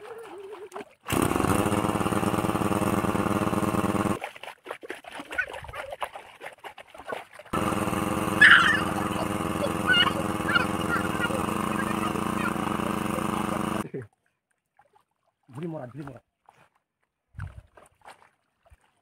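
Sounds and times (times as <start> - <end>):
motor humming: 1.1 - 4.2, 7.6 - 13.8
short high calls: 8.3 - 11.3.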